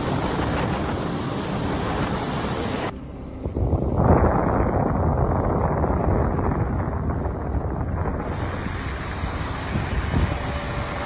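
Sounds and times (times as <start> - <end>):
wind and torrential rain: 0.0 - 3.0, 5.2 - 11.0
wind buffeting microphone: 0.0 - 11.0.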